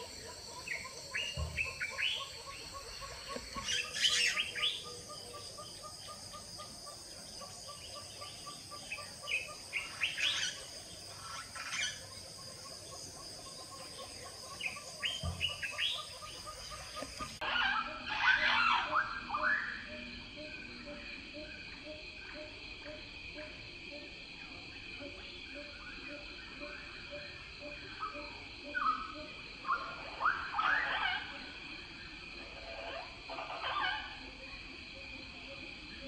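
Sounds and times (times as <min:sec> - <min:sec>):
birds chirping: 0:00.0 - 0:21.0
high-pitched insect drone: 0:00.0 - 0:36.0.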